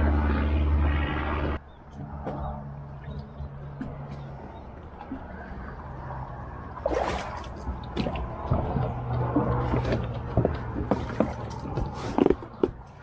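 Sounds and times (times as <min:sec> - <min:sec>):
water lapping against kayak hull: 0:03.1 - 0:12.4.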